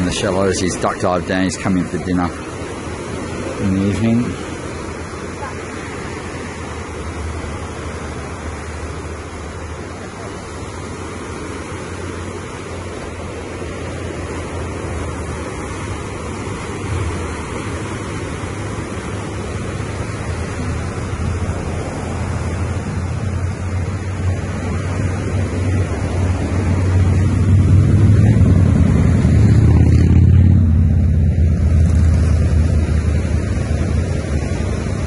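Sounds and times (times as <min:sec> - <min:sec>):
sea waves washing: 0:00.0 - 0:35.0
wind buffeting microphone: 0:12.0 - 0:35.0.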